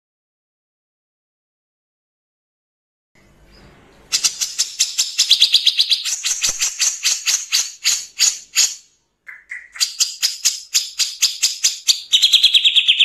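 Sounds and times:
bulbul harsh rasping call: 4.1s - 13.0s.

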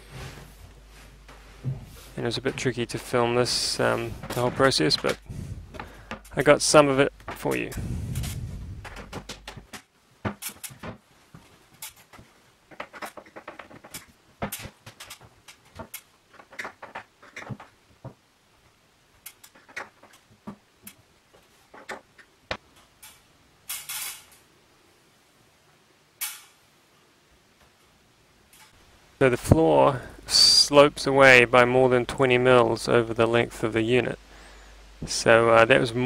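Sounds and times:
scraping rustle: 0.0s - 17.8s
cabinet doors clicking and knocking: 8.8s - 11.1s, 12.1s - 18.2s.

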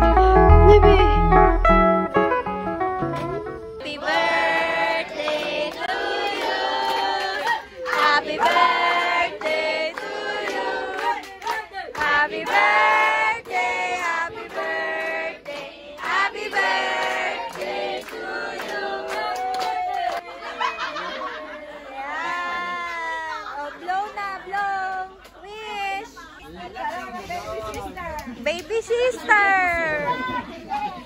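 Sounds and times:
group singing together: 3.8s - 20.2s
hand clapping: 5.2s - 12.7s.

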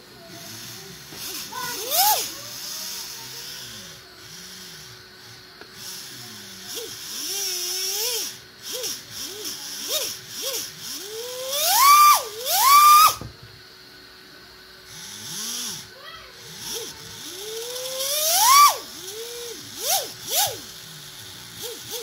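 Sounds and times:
electric motor whining: 0.0s - 13.4s, 14.7s - 22.0s.

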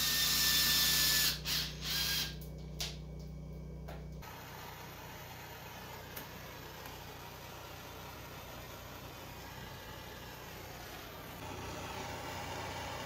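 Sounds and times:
low steady hum: 0.0s - 13.0s.

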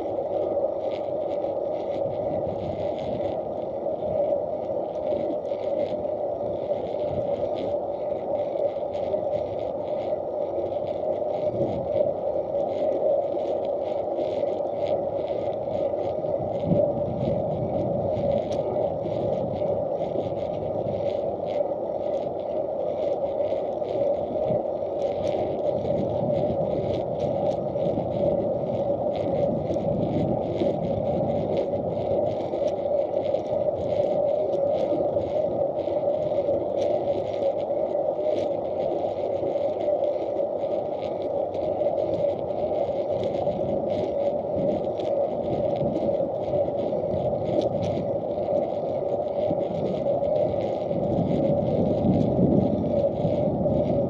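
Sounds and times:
wheels rolling on asphalt: 15.6s - 54.0s.

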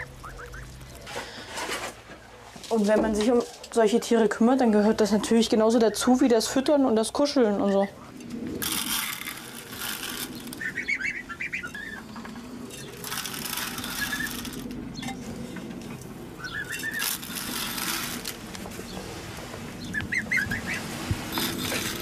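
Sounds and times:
goslings peeping: 0.0s - 1.4s, 8.7s - 15.1s, 16.4s - 19.0s, 19.8s - 22.0s
rustling in wood shavings: 0.0s - 3.5s, 8.6s - 15.6s, 16.4s - 22.0s.

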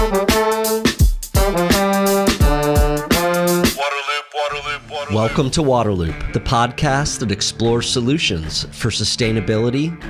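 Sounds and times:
drum hits: 0.0s - 3.8s
intro music with held chords: 0.0s - 5.8s.

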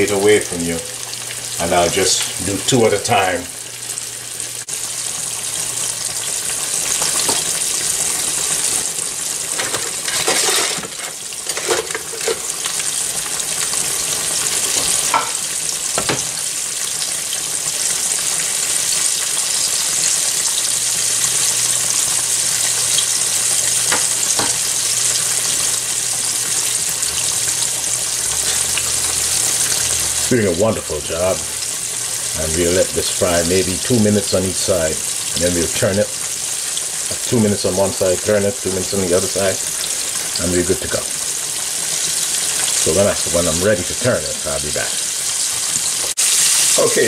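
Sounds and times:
fish frying in hot oil: 0.0s - 47.0s.

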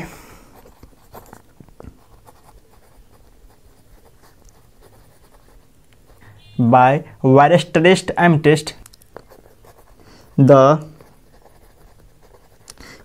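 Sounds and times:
pen scratching on paper: 0.6s - 6.2s, 9.1s - 13.0s.

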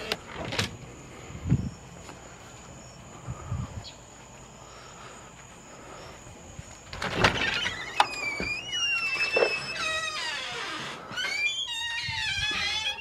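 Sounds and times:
door clatter: 6.9s - 13.0s
door squealing creak: 6.9s - 13.0s.

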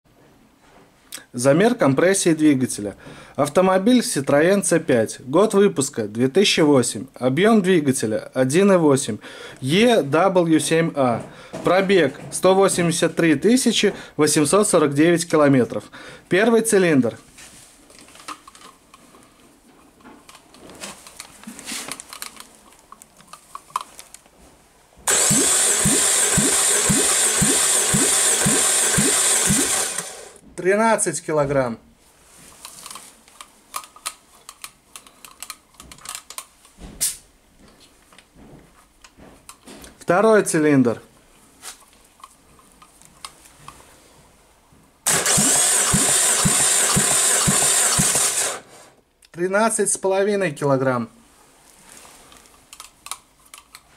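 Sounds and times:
faint clicks and handling: 17.9s - 24.4s, 32.4s - 36.8s, 41.7s - 43.9s, 51.7s - 53.9s
starter cranking engine: 25.1s - 30.4s, 45.1s - 48.9s.

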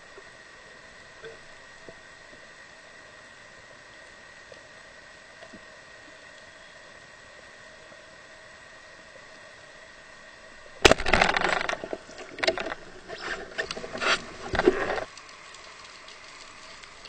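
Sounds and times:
speargun firing underwater: 10.8s - 12.8s
mechanical clatter and rattling: 10.8s - 15.1s.

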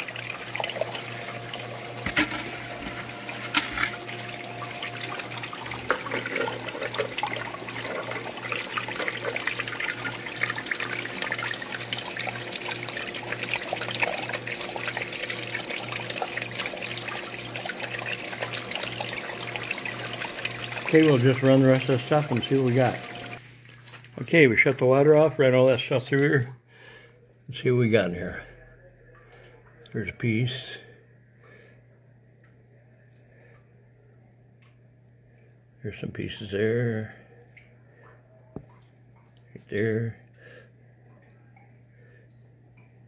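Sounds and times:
water rushing down a sluice: 0.0s - 23.4s.

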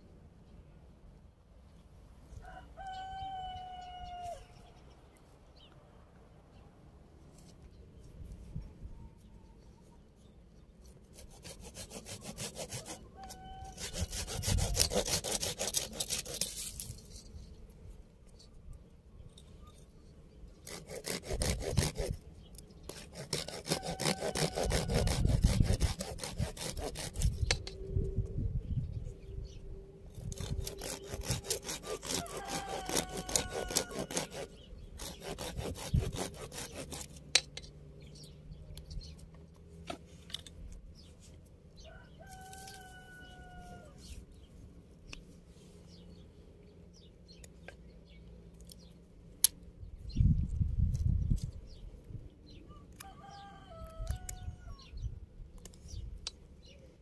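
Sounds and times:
rooster crowing: 2.4s - 4.6s, 12.8s - 14.9s, 23.6s - 25.4s, 31.9s - 34.5s, 41.8s - 44.0s, 52.7s - 54.9s
hand saw cutting wood: 11.1s - 17.0s, 20.6s - 22.2s, 22.8s - 27.6s, 30.1s - 37.5s.

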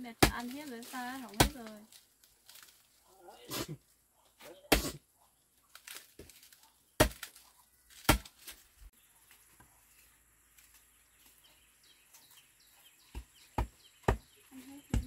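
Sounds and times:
faint high bird chirps: 10.8s - 15.0s.

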